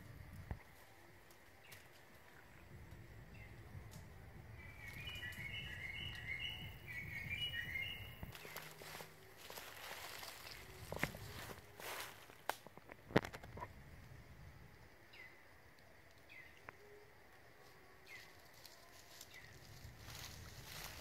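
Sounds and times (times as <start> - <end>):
bird chirping: 4.4 - 11.4.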